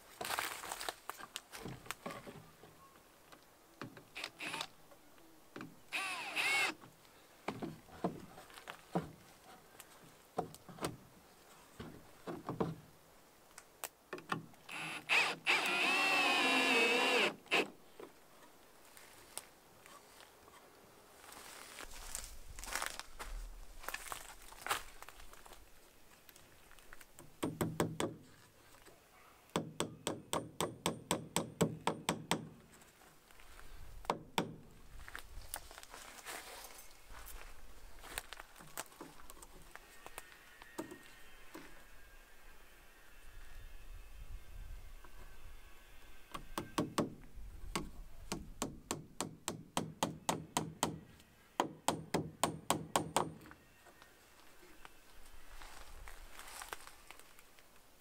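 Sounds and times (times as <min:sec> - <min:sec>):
hammer tapping on wood: 0:47.8 - 0:51.0.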